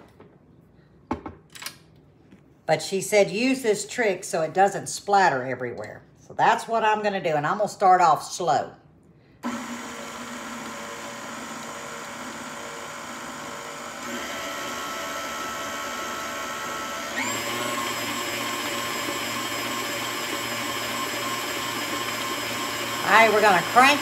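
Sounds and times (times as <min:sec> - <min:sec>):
stand mixer motor whine: 0:09.4 - 0:24.0.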